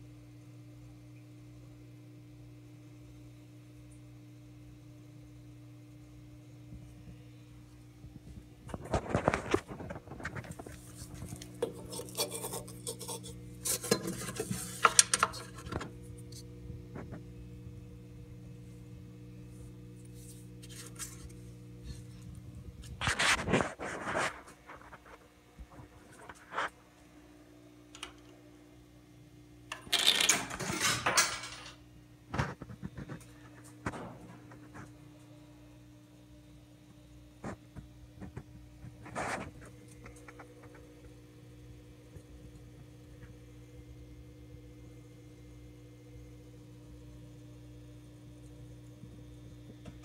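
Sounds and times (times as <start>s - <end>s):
low electrical hum: 0.0s - 50.0s
phone handling scraping and rubbing: 8.7s - 16.4s, 20.0s - 22.1s, 22.8s - 25.2s, 26.0s - 26.8s, 39.0s - 40.8s
jukebox mechanism clattering: 29.7s - 31.8s.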